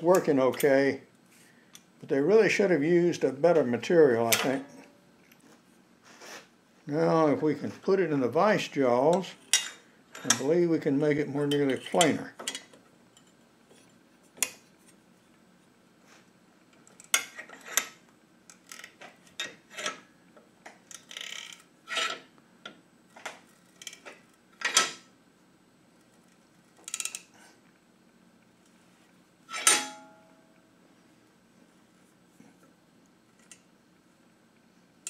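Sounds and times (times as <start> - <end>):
metallic clank: 29.5 - 30.3.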